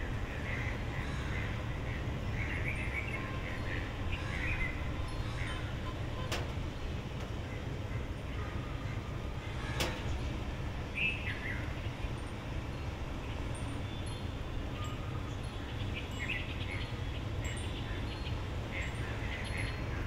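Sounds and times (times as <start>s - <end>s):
bird chirping: 8.5s - 20.0s.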